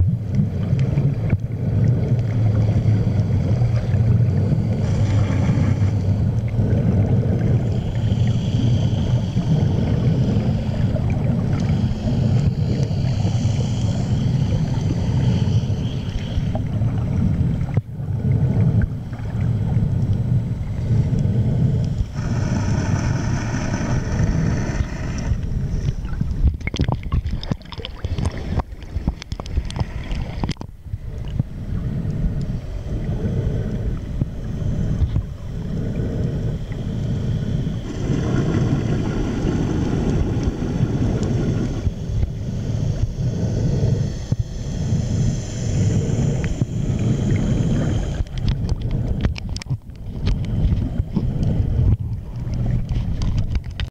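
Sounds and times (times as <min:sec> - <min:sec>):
faint high hum: 0:00.0 - 0:53.9
underwater low rumble: 0:00.0 - 0:53.9
water splashing: 0:22.1 - 0:31.5.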